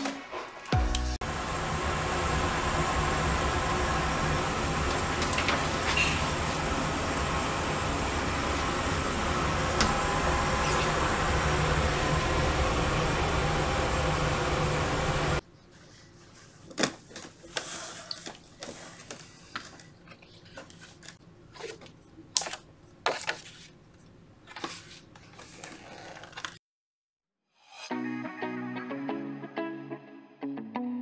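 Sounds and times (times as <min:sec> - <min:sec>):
loud rushing hum: 0:01.2 - 0:15.4
paper pages rustling: 0:15.7 - 0:26.6.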